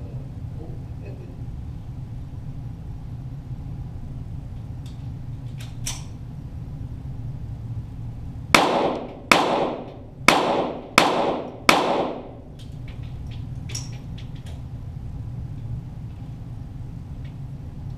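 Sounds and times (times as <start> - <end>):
pistol shots with echo: 8.6 - 12.4.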